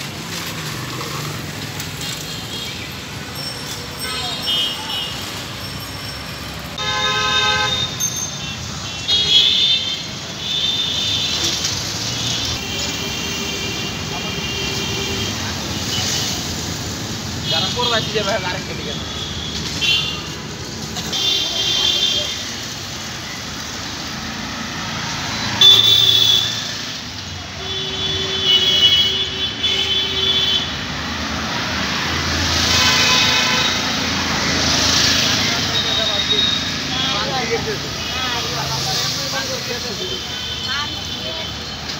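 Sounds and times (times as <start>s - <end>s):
road traffic: 0.0s - 41.9s
vehicle horns honking: 6.8s - 11.6s, 25.4s - 26.8s, 27.5s - 30.8s, 32.4s - 34.3s.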